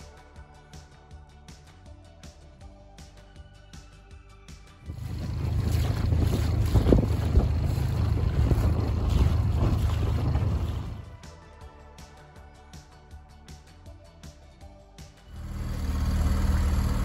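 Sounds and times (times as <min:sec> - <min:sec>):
faint background music: 0:00.0 - 0:17.0
outboard motor and water rush: 0:04.8 - 0:11.2, 0:15.3 - 0:17.0
wind buffeting microphone: 0:04.9 - 0:11.2.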